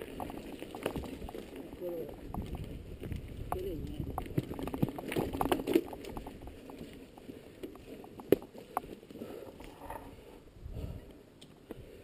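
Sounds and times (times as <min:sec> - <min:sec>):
bike tyres striking stones: 0:00.0 - 0:09.1
bike rattling: 0:00.0 - 0:10.4.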